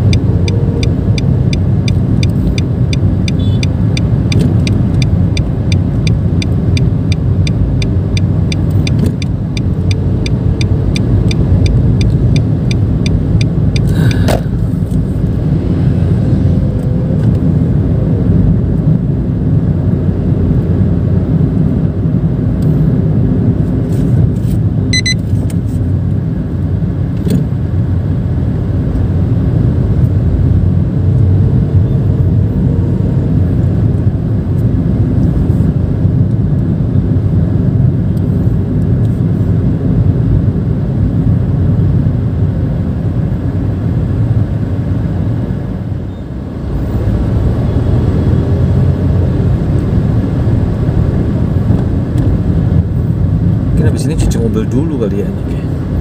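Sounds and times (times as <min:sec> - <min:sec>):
engine and tyre rumble: 0:00.0 - 0:56.0
high beep: 0:03.3 - 0:03.8, 0:24.9 - 0:25.2.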